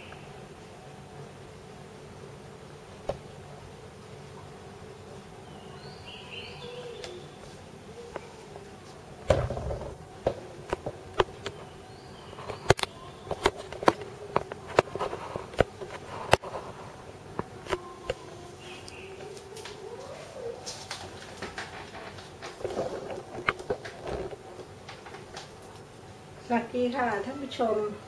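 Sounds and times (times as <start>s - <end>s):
buzzing hum wavering in pitch: 0.0s - 20.8s
sharp clicks and knocks: 9.2s - 11.7s, 12.4s - 16.5s, 20.9s - 25.9s.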